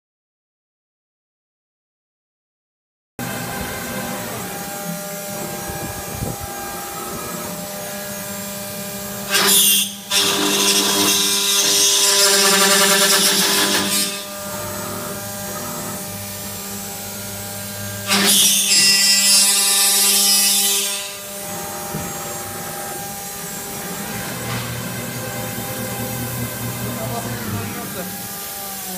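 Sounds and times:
machining centre whining: 3.2 - 9.2, 21.2 - 28.9
spindle cutting aluminium: 3.6 - 28.9.

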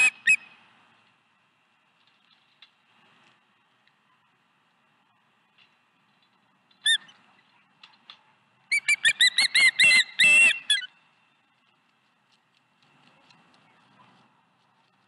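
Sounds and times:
osprey whistled chirps: 0.0 - 0.6, 8.7 - 11.0.

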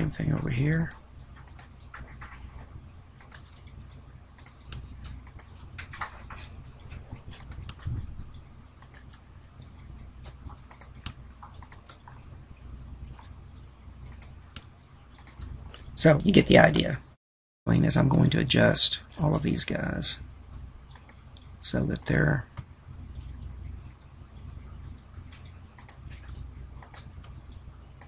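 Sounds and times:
faint low hum: 0.0 - 28.0
mouse and keyboard clicking: 3.2 - 3.6, 4.4 - 6.1, 7.3 - 7.8, 8.8 - 9.2, 10.3 - 12.3, 14.1 - 15.9, 25.3 - 27.4.

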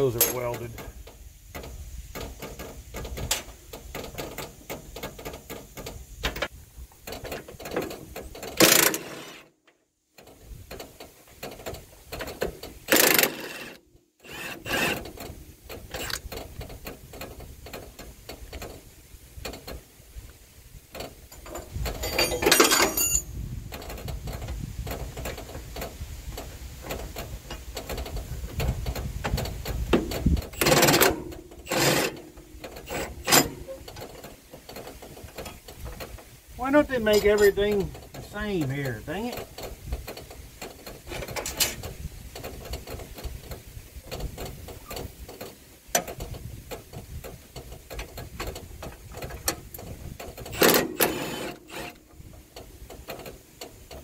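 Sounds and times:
metal clanks: 0.0 - 9.4, 20.9 - 54.0
ratchet wrench clicking: 8.5 - 9.4, 12.9 - 16.7.

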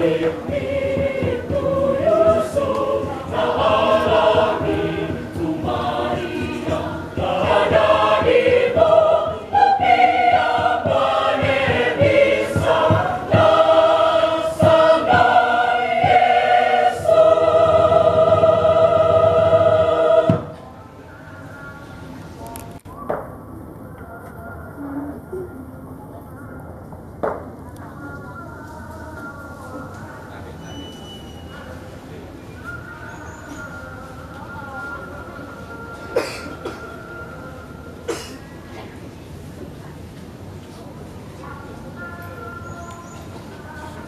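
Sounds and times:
choir singing in harmony: 0.0 - 21.6.

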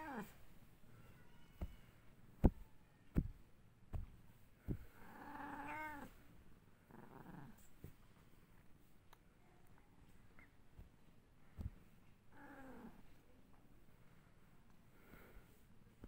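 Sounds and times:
cat meowing: 5.2 - 6.1.

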